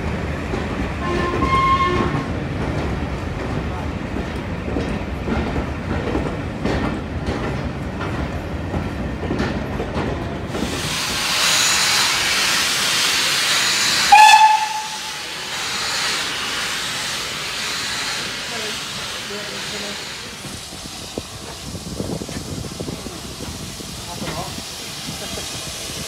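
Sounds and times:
train coaches rumbling over track: 0.0s - 26.0s
high train whistle blast: 1.0s - 2.2s, 13.7s - 15.4s
loud steam hissing: 10.4s - 26.0s.

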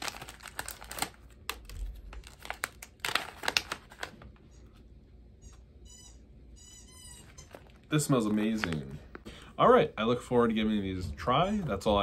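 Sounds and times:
foil pouch crinkling: 0.0s - 4.5s, 7.2s - 9.3s.

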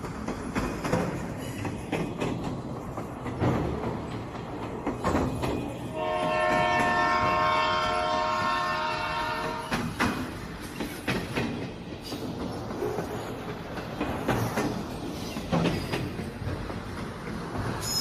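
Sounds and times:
train rumble: 0.0s - 18.0s
train wheels clacking: 0.0s - 18.0s
train horn: 5.9s - 10.0s.

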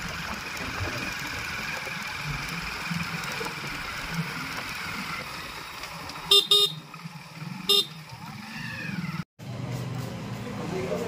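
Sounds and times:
vehicle running on road: 0.0s - 11.0s
vehicle horn beeps: 6.3s - 6.8s, 7.7s - 8.0s.

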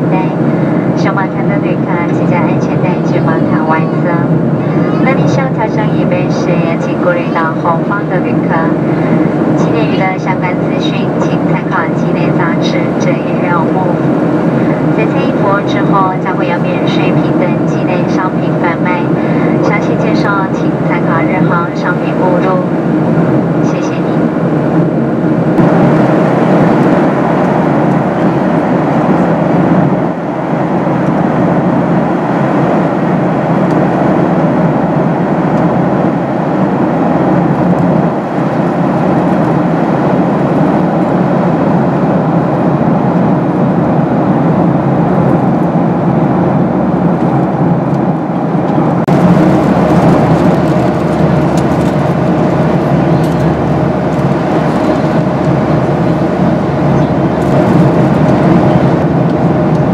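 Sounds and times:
airflow rushing in cabin: 0.0s - 59.9s
jet engines humming: 0.0s - 59.9s.

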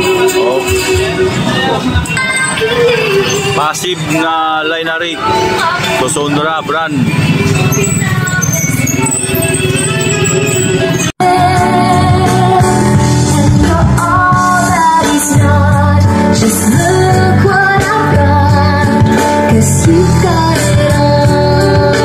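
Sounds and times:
steady bass line: 6.0s - 22.0s.

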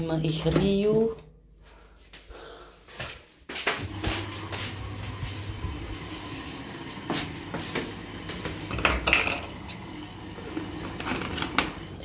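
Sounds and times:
plastic bottles clunking and rattling: 8.4s - 12.0s.

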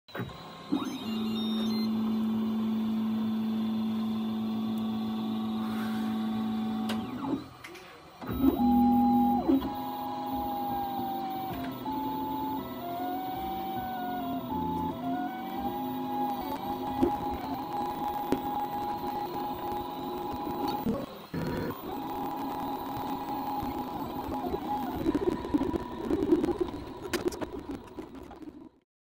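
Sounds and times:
printer stepper motors whining: 0.1s - 28.7s.

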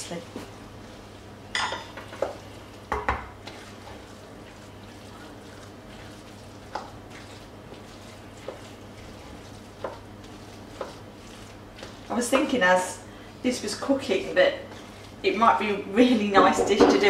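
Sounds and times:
spoon stirring thick food: 1.9s - 15.6s
spoon knocking against pot: 16.4s - 17.0s.

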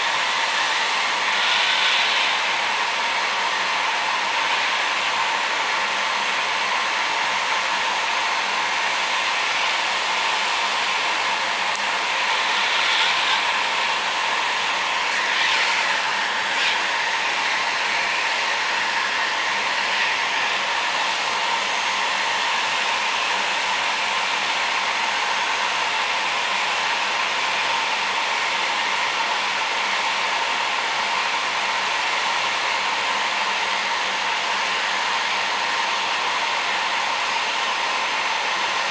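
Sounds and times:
heat gun blowing hiss: 0.0s - 28.9s.

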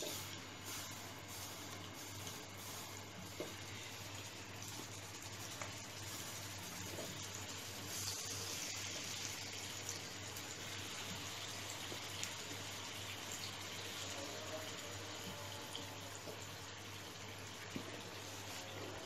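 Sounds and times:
food sizzling in hot oil: 0.0s - 19.0s.

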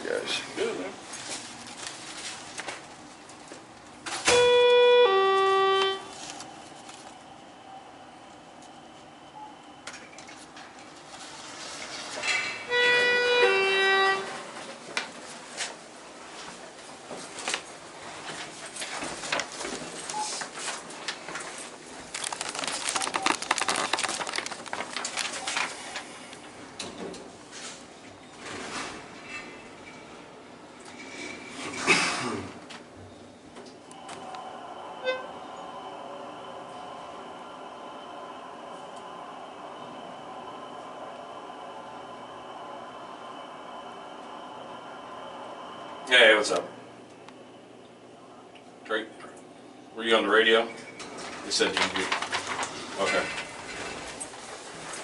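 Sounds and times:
rustling handling noise: 1.0s - 3.5s, 6.1s - 7.2s, 20.5s - 26.2s
elevator two-note chime: 4.3s - 6.0s
handling rustle: 22.0s - 26.1s.

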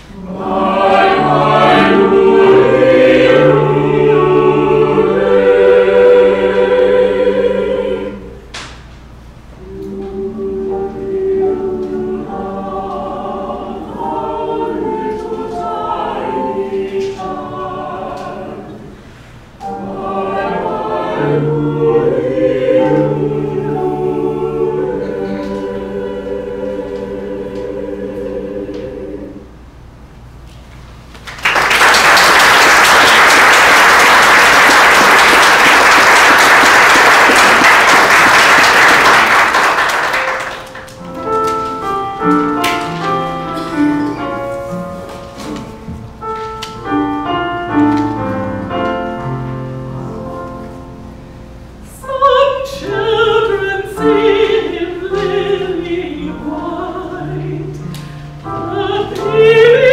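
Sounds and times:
choir singing: 0.0s - 8.5s, 9.6s - 29.6s, 32.4s - 45.7s, 51.8s - 59.9s
piano playing: 0.0s - 8.5s, 9.5s - 29.8s, 32.2s - 59.9s
audience applauding: 31.1s - 41.0s
woman singing opera: 51.9s - 59.9s.

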